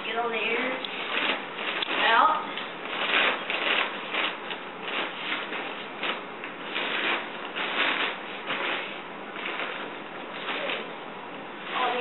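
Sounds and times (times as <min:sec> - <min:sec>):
tent fabric rustling: 0:00.5 - 0:11.0, 0:11.6 - 0:12.0.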